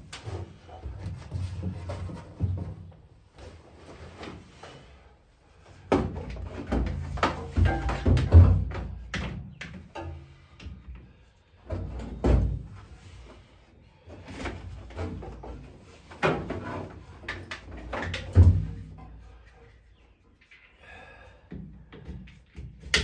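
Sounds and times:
clunks and knocks on metal: 0:05.9 - 0:10.8.

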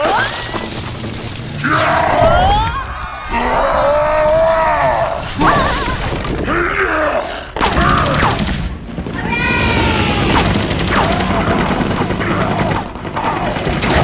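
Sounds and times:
monster roaring: 0:01.4 - 0:08.4
high wavering cries and shrieks: 0:01.6 - 0:08.4.

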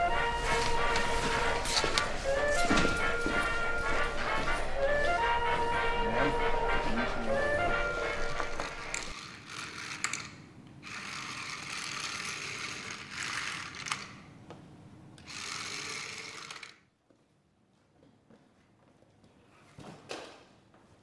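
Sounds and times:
toy robot motor whirring: 0:08.9 - 0:14.2, 0:15.2 - 0:16.8.

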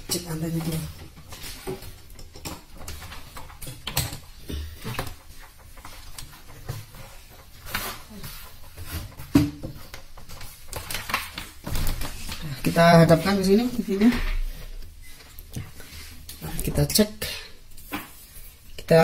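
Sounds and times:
knocks and clicks from handling television: 0:00.0 - 0:12.4.

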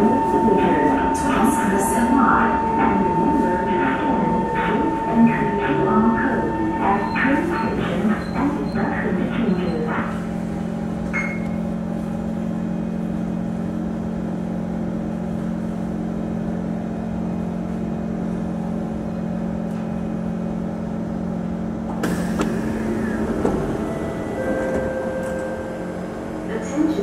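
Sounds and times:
train humming: 0:00.0 - 0:27.0
train doors sliding open: 0:21.9 - 0:27.0.

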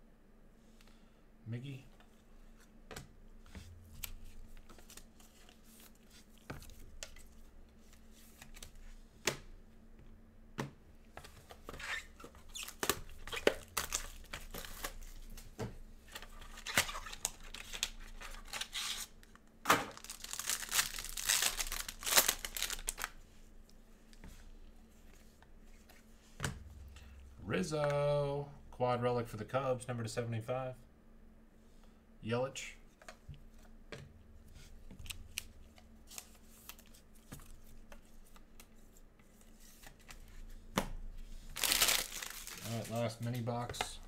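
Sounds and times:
plastic wrapper crinkling and tearing: 0:11.9 - 0:15.2, 0:16.5 - 0:23.2, 0:41.5 - 0:43.4.

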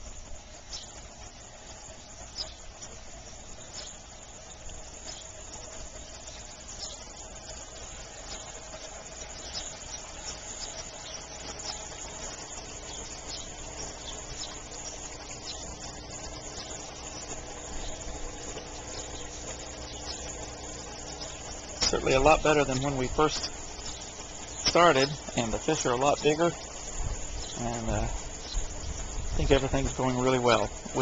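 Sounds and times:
faint steady hum: 0:00.0 - 0:31.0
steady hiss: 0:00.0 - 0:31.0.

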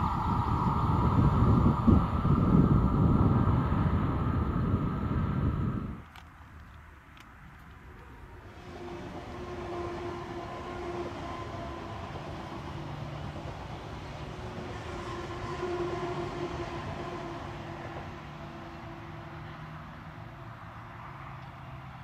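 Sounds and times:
electric drive whine: 0:00.0 - 0:06.4
train wheels on rails: 0:00.0 - 0:22.0.

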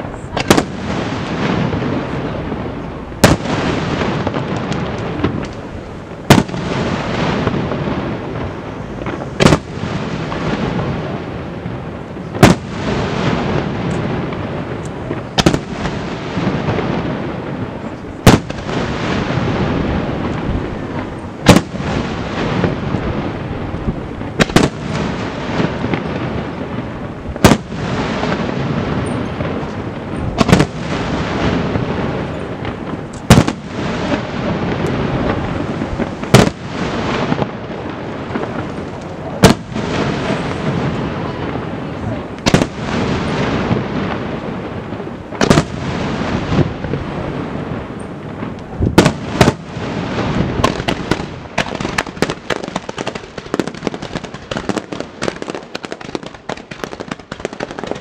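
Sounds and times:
din of lesser firework bursts: 0:00.0 - 0:58.0
firework shells bursting: 0:11.6 - 0:41.0, 0:47.8 - 0:58.0.

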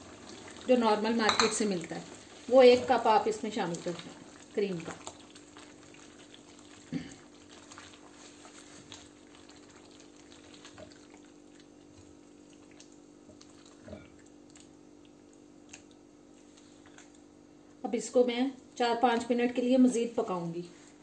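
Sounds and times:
spatula stirring and scraping: 0:00.0 - 0:14.2.

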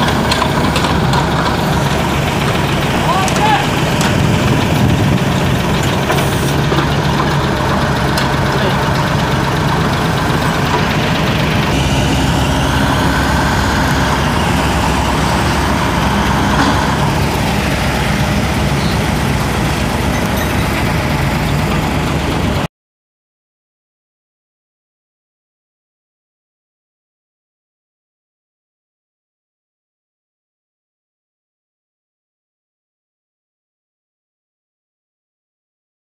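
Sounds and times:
diesel truck engine idling: 0:00.0 - 0:22.7.

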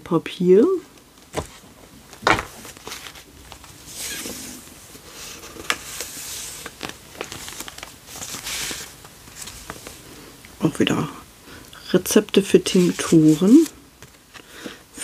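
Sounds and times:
paper sliding and rustling: 0:02.2 - 0:10.0, 0:12.6 - 0:14.5.

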